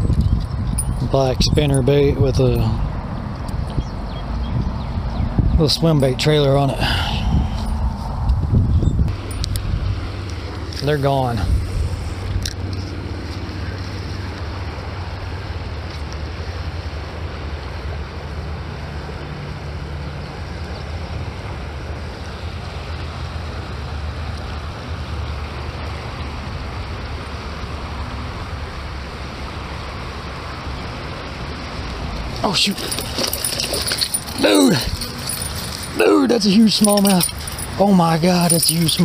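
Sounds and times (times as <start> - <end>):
wind rumbling on microphone: 0.0 - 16.1
river water hissing: 9.9 - 39.0.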